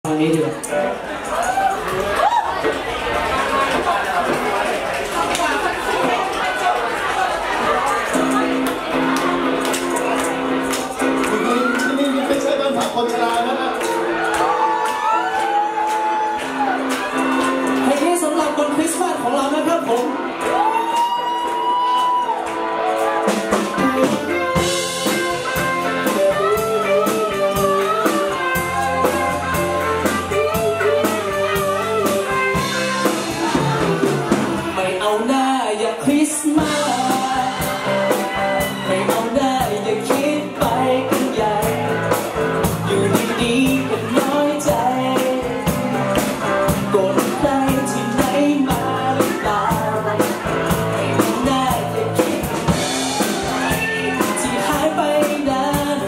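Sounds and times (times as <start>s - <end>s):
electric guitar: 0.1s - 56.0s
man singing: 11.2s - 13.8s, 23.6s - 56.0s
steady beat: 22.6s - 34.8s, 36.6s - 56.0s.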